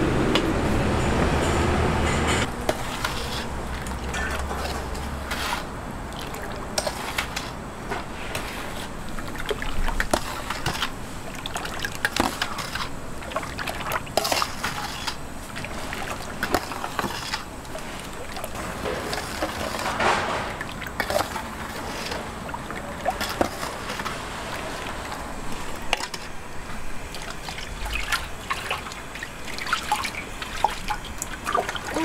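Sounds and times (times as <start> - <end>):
wet sloshing: 2.6 - 32.0
kitchen knocks and clatter: 18.8 - 20.7.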